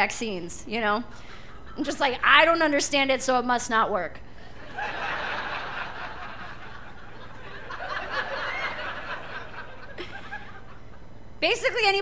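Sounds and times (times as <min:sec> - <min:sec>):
audience laughing: 0:04.6 - 0:11.1.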